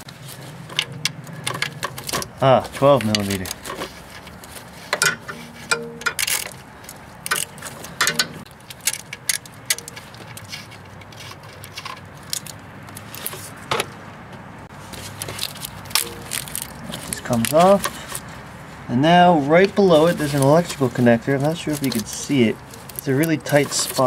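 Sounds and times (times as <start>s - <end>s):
wrench metallic clicks: 7.3s - 12.6s.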